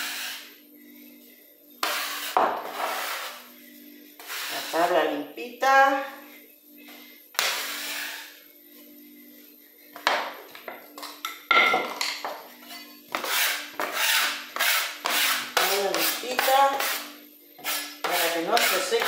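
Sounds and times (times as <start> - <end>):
metal spatula scraping wooden board: 1.8 - 3.4, 4.2 - 4.9, 12.7 - 17.0, 17.6 - 19.0.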